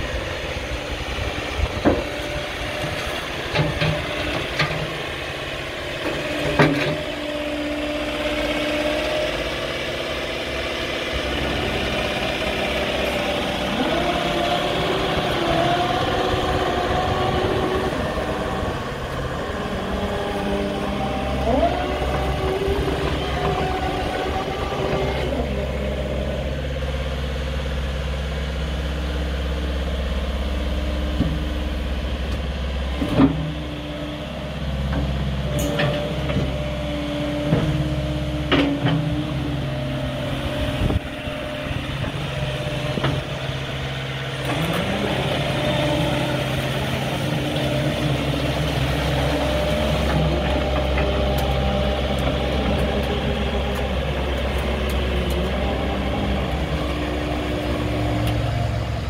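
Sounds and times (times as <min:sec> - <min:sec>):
diesel excavator engine running: 0:00.0 - 0:59.0.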